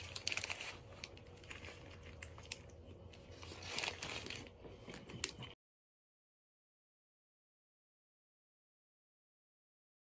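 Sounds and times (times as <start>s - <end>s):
paper wrapper crinkling: 0.0s - 5.5s.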